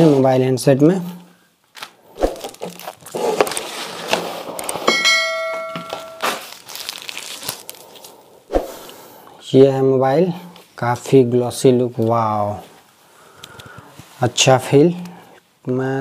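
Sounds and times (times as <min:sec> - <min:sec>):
packaging rustling: 0:01.7 - 0:04.9, 0:05.9 - 0:08.2
bell-like chime: 0:04.9 - 0:06.4.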